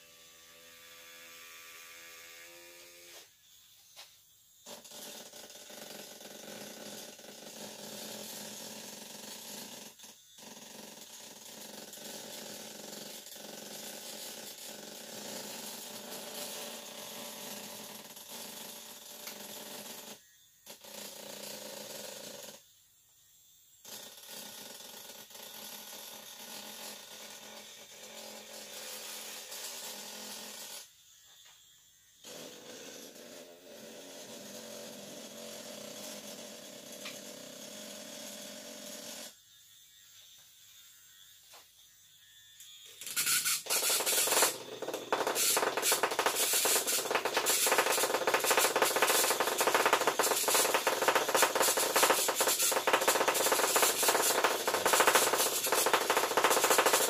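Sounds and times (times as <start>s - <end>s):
even motor hum: 26.9s - 57.0s
vibrator rattling against mould: 43.6s - 57.0s.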